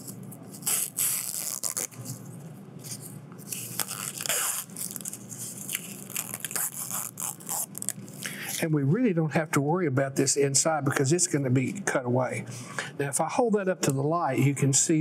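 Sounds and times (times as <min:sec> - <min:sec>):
foam film peeling and crackling: 0:00.0 - 0:02.3, 0:02.9 - 0:08.0.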